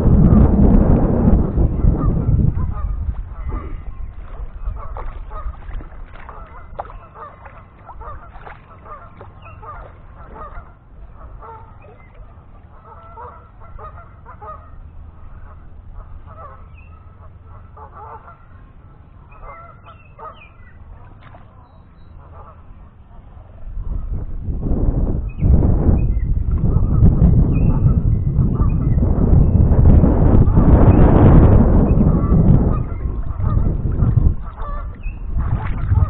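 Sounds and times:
low rumble: 0.0 - 17.8, 22.4 - 36.0
geese honking: 1.4 - 20.8, 21.6 - 22.9, 31.6 - 36.0.

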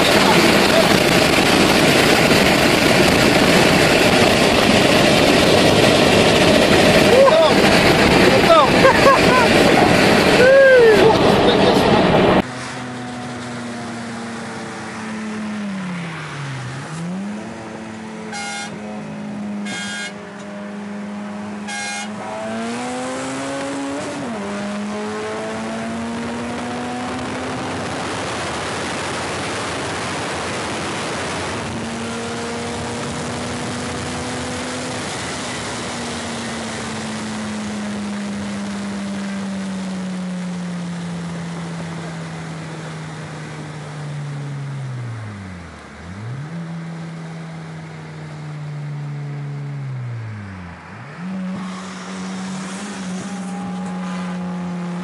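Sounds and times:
rushing wind and road noise: 0.0 - 55.0
car engine from inside: 31.6 - 55.0.

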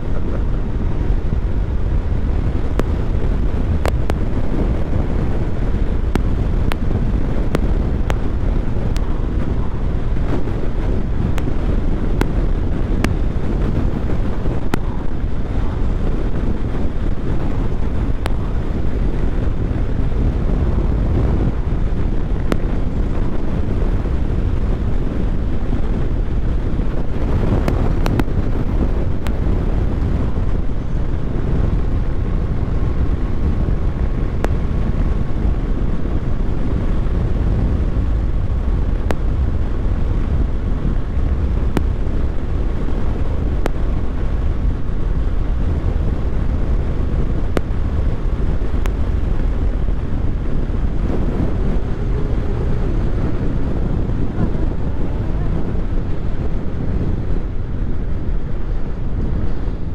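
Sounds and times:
engine and road rumble: 0.0 - 59.9
wind rushing over microphone: 0.0 - 59.9
faint ticks: 3.8 - 4.2, 27.6 - 28.4.

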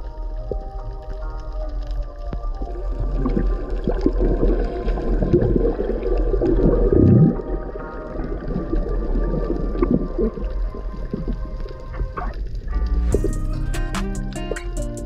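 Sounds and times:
water churning and gurgling: 0.0 - 13.3.

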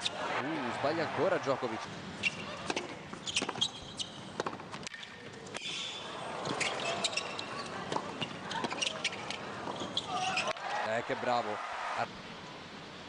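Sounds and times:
shoes squeaking on court: 2.2 - 10.6.

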